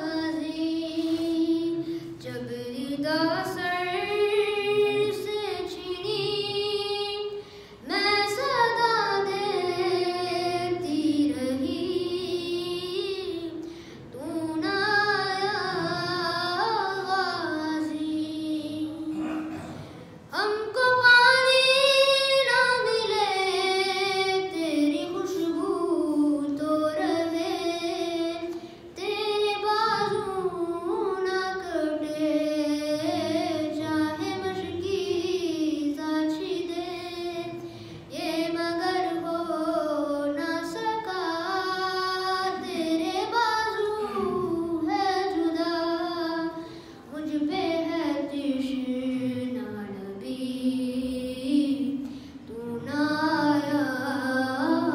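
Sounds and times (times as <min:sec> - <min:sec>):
boy singing unaccompanied chant: 0:00.0 - 0:54.9
short breaths: 0:01.8 - 0:02.2, 0:07.4 - 0:07.9, 0:13.6 - 0:14.1, 0:37.6 - 0:38.1, 0:46.6 - 0:47.1, 0:52.0 - 0:52.5.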